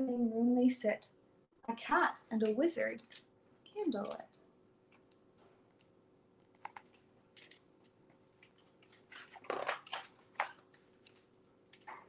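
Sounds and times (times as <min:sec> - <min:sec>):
paper pages rustling: 0:06.8 - 0:12.0.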